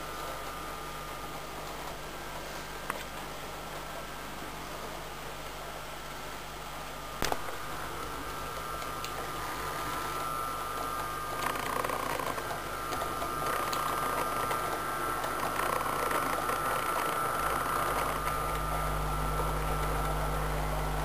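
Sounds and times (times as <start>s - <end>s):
model train motor whirring: 7.2s - 18.7s
wheels running on rails: 7.5s - 20.2s.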